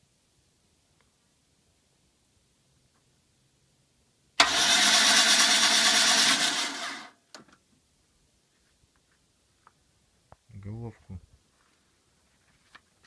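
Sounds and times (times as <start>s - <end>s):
starter motor cranking engine: 4.4s - 7.2s.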